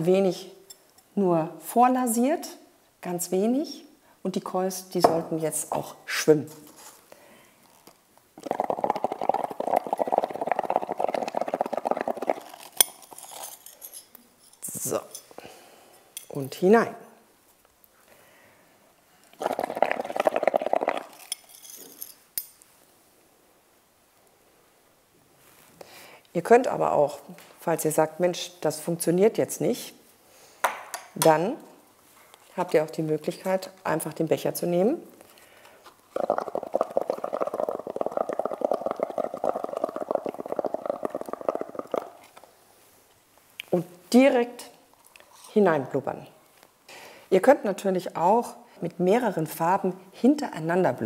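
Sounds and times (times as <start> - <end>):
bubbling through a straw: 8.4 - 13.2, 19.3 - 21.4, 36.0 - 42.5.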